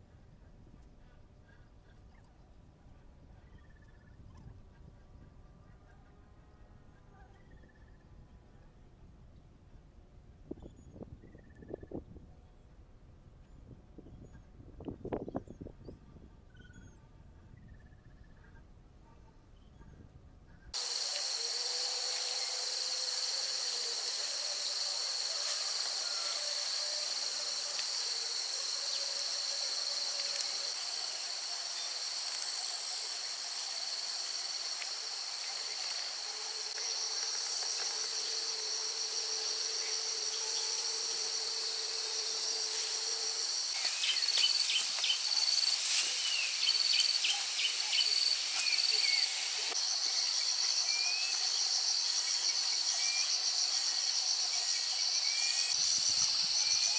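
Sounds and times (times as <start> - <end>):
insects shrilling drone: 20.8 - 56.9.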